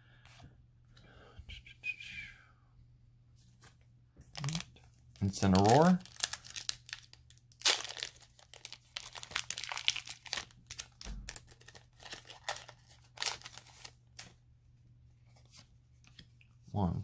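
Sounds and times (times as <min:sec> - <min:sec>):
foil wrapper crinkling: 0:04.4 - 0:14.0
wrapper tearing: 0:04.4 - 0:14.0.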